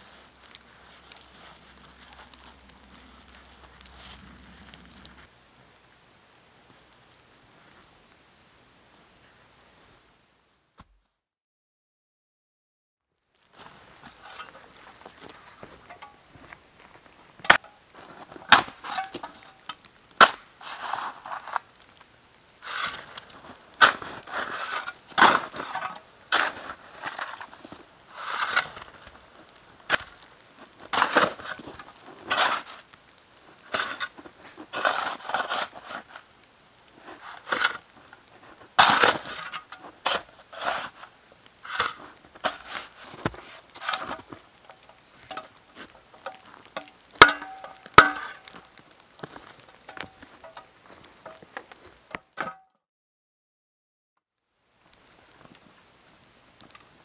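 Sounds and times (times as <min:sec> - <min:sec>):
shovel scraping snow and dirt: 0:00.0 - 0:05.3, 0:13.4 - 0:52.0.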